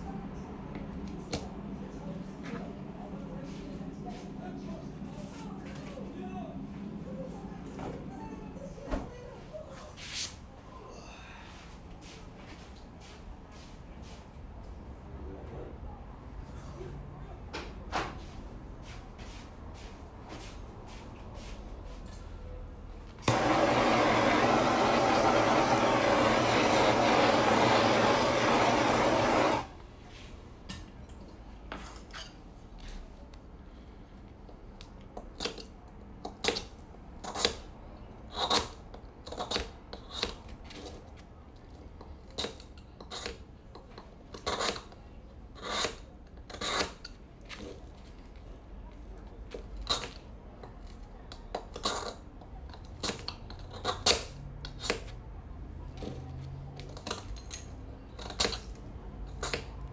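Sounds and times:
blowtorch flame hissing: 23.2 - 29.7
knife scraping ice: 36.4 - 37.6, 38.3 - 41.0, 42.3 - 43.4, 44.3 - 47.8, 51.7 - 52.2.

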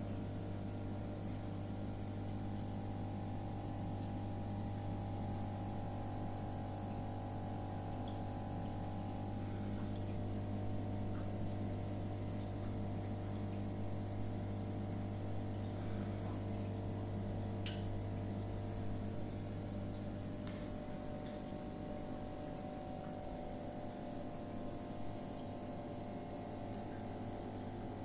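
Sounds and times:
aquarium equipment hum: 0.0 - 28.0
water trickling and dripping: 1.1 - 27.2.

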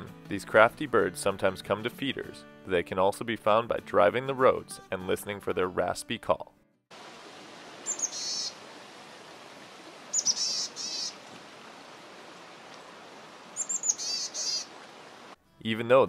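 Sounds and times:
steady background hiss: 6.9 - 15.4
chickadee raspy call: 7.8 - 8.6, 10.1 - 11.3, 13.5 - 14.8.

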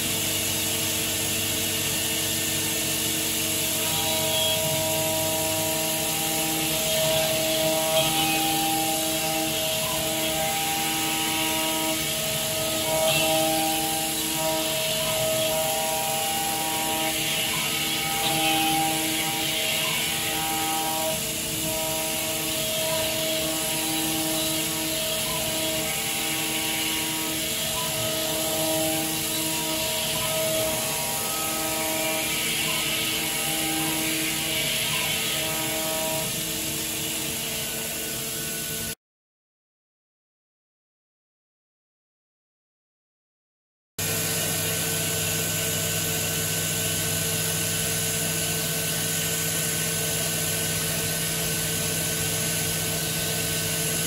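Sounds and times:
milling cutter hissing: 0.0 - 38.0
milling cutter whine: 0.0 - 38.9, 44.0 - 54.0.

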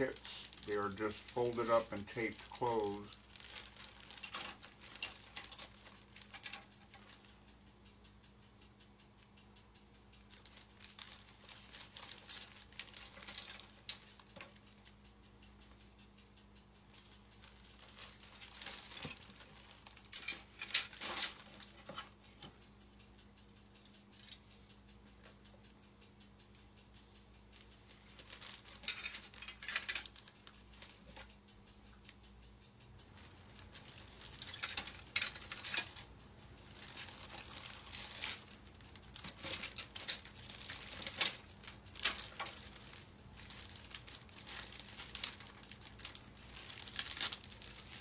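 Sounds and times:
plastic bags crinkling: 0.0 - 7.2, 10.4 - 14.5, 17.4 - 22.0, 28.0 - 30.2, 33.2 - 48.0.

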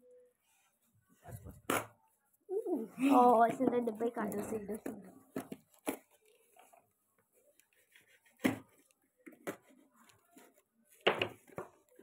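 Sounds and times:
knocks and scrapes on cardboard: 7.8 - 11.9.

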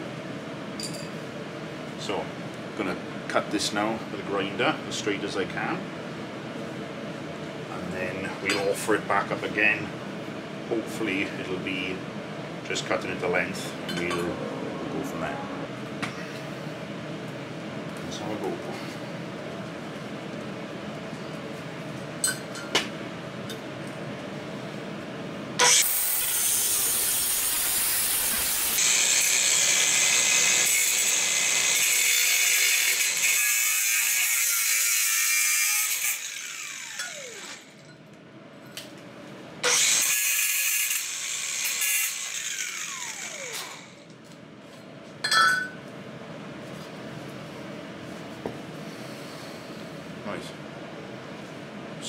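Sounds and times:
angle grinder cutting metal: 25.6 - 37.8, 39.6 - 44.0
metal clink: 45.3 - 45.8.

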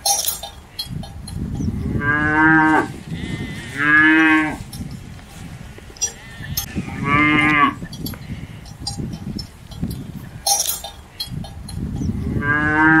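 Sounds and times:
cattle mooing: 1.8 - 4.6, 6.0 - 7.8, 12.2 - 13.0.

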